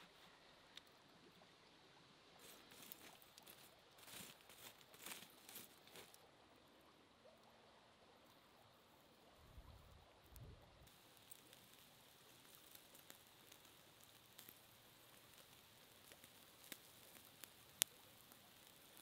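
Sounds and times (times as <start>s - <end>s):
meat sizzling over charcoal: 2.4s - 6.2s, 10.8s - 19.0s
small pops: 2.4s - 6.2s, 10.3s - 19.0s.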